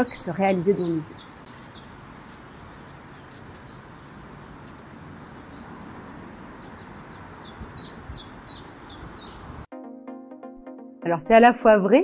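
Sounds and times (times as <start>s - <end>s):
high bird chirps: 0.0s - 9.7s
steady outdoor hiss: 0.0s - 9.7s.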